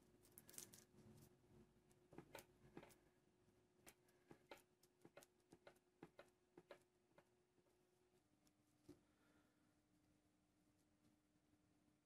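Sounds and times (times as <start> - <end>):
small clicks and taps of handling: 3.8 - 7.4.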